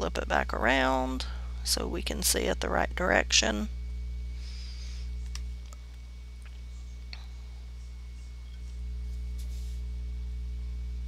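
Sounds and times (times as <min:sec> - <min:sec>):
electrical hum with high whine: 0:00.0 - 0:11.0
faint clicks: 0:05.2 - 0:07.3.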